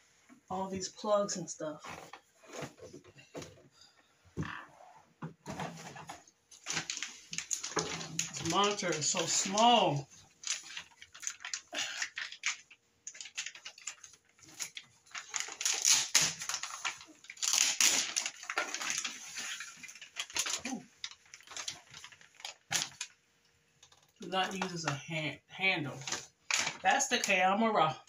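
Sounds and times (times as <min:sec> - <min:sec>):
plastic wrap crinkling: 0:05.7 - 0:24.8, 0:25.9 - 0:27.4.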